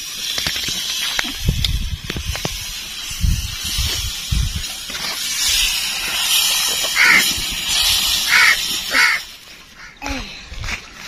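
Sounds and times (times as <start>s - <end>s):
dough sizzling on hot iron: 0.0s - 9.8s
crow cawing: 7.0s - 7.2s, 8.3s - 9.2s.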